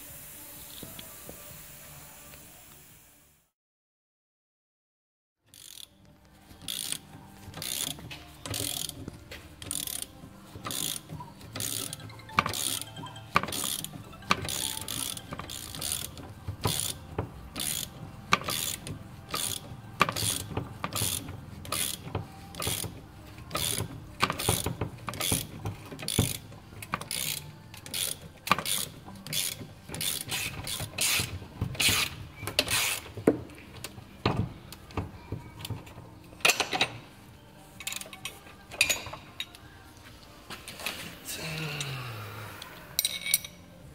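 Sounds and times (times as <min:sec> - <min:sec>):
ratchet wrench clicking: 0:05.5 - 0:05.9, 0:06.6 - 0:33.2.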